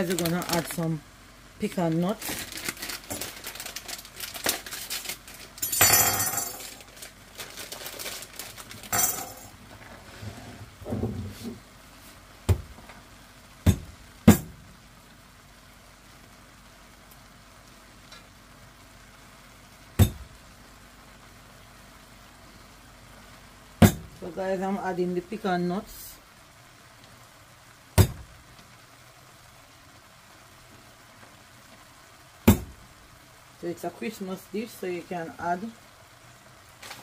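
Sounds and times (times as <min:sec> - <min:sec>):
plastic bag crinkling: 0:00.0 - 0:01.0, 0:01.6 - 0:09.9, 0:36.8 - 0:37.0
kitchenware clinking: 0:05.6 - 0:06.9, 0:08.9 - 0:09.6.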